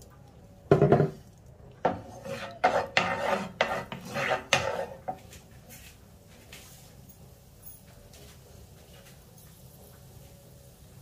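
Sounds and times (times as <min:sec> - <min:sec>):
wooden spoon scraping a frying pan: 0:01.8 - 0:05.4.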